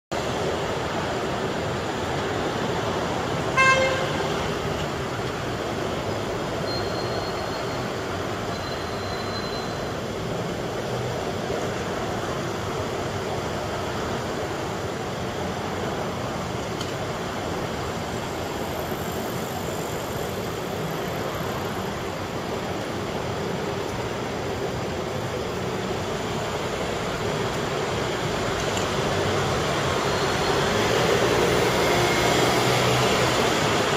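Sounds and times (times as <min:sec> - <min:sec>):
city street traffic: 0:00.1 - 0:33.9
vehicle horn toot: 0:03.6 - 0:04.3.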